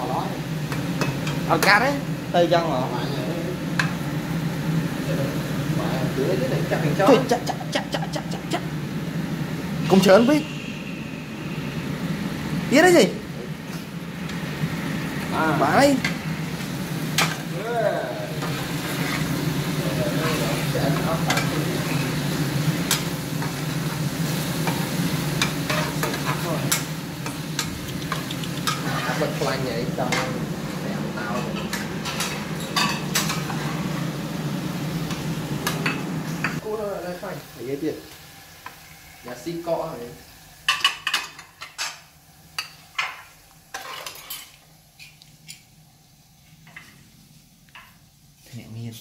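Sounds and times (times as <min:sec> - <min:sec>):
food sizzling in oil: 0:00.0 - 0:48.5
metal spatula scraping a wok: 0:18.5 - 0:19.4, 0:25.4 - 0:26.8, 0:28.6 - 0:29.5, 0:43.7 - 0:44.5.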